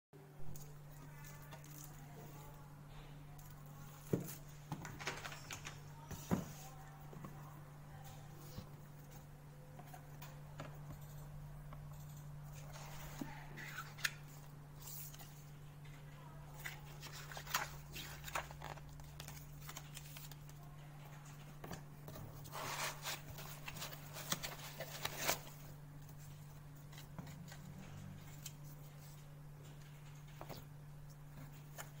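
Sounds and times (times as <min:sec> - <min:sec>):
paper rustling: 0:16.5 - 0:21.3, 0:22.1 - 0:30.7.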